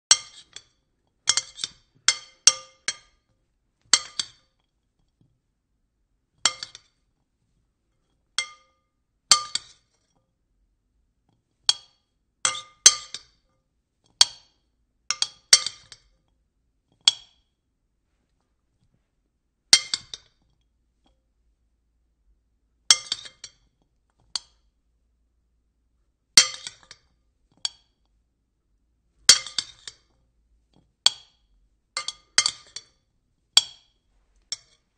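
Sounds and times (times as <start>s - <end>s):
spoon clinking against bowl: 32.0s - 33.0s.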